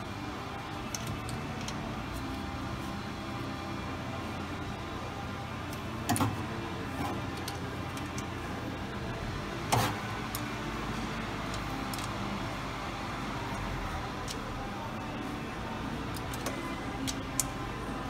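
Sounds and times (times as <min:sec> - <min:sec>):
workshop background noise: 0:00.0 - 0:18.0.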